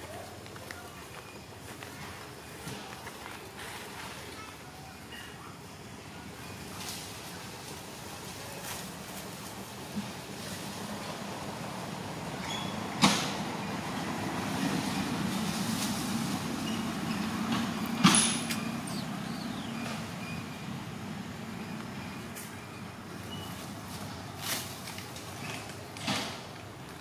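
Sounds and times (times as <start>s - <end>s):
engine humming: 0.0s - 27.0s
low outdoor rumble: 0.0s - 27.0s
faint rustle: 15.3s - 17.0s.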